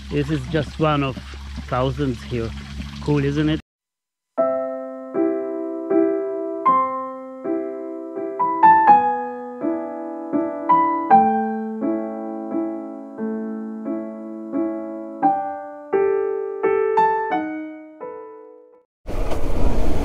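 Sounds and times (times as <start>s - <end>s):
gentle piano music: 4.4s - 18.9s.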